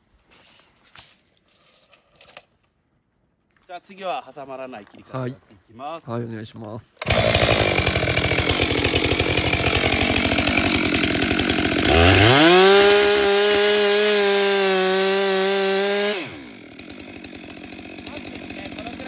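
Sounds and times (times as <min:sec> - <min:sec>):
chainsaw cutting log: 0:07.0 - 0:19.0.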